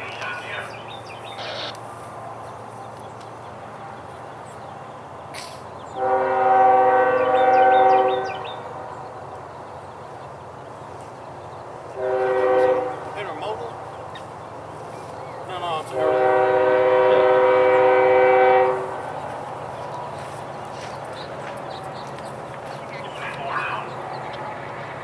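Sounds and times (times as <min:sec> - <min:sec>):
distant locomotive air horn: 0:05.9 - 0:08.6, 0:12.0 - 0:13.3, 0:15.9 - 0:19.2.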